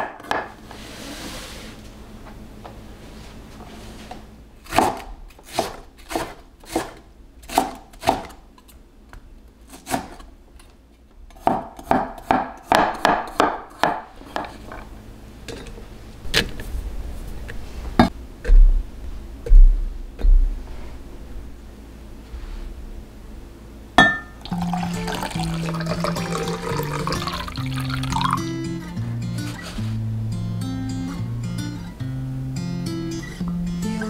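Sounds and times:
sharp knocks and low thuds: 0:18.0 - 0:20.6.

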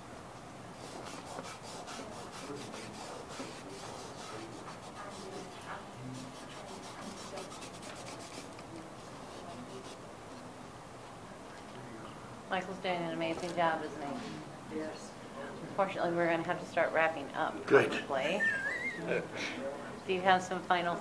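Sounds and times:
cloth rubbing on paper: 0:00.8 - 0:10.0.

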